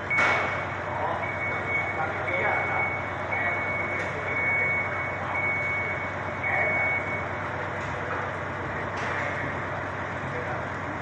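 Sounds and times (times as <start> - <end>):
vehicle reversing alarm beeping: 0.0 - 7.8
street and work noise: 0.0 - 11.0.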